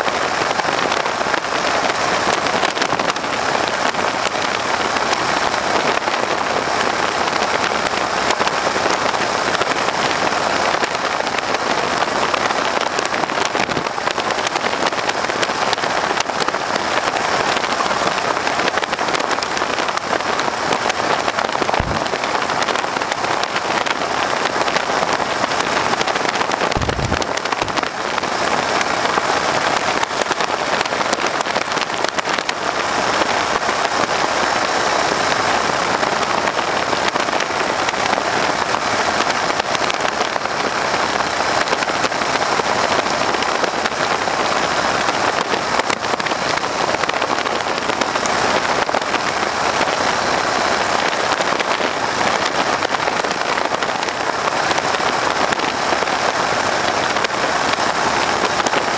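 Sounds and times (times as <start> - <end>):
propeller plane engine: 0.0 - 58.9
wind buffeting microphone: 21.3 - 23.4, 26.4 - 28.4.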